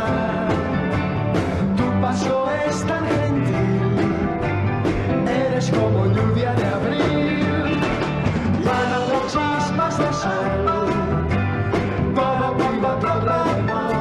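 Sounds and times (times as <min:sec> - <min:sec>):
man singing into microphone: 0:00.0 - 0:00.9, 0:01.8 - 0:04.0, 0:05.2 - 0:11.3, 0:12.1 - 0:14.0
drum beats: 0:00.0 - 0:14.0
live pop band playing: 0:00.0 - 0:14.0.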